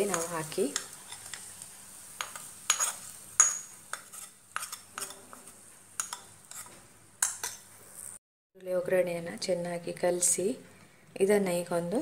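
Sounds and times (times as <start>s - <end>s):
metal spoon scraping and clinking pan: 0.0s - 1.6s, 2.2s - 7.7s.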